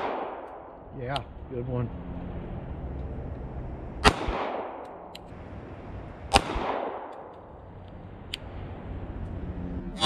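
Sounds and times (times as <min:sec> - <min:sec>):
gunshot echo: 0:00.0 - 0:00.7, 0:04.0 - 0:05.1, 0:06.3 - 0:07.3
pistol shots: 0:00.0 - 0:00.7, 0:04.0 - 0:05.2, 0:06.3 - 0:07.3.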